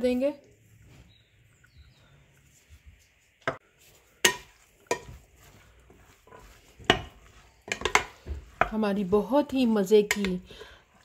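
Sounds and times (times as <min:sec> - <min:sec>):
soft mixing of yogurt: 0:00.0 - 0:11.0.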